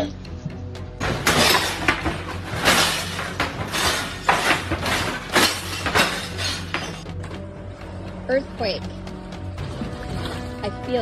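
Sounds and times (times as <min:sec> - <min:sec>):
dishes and drawers clattering: 0:01.0 - 0:07.1.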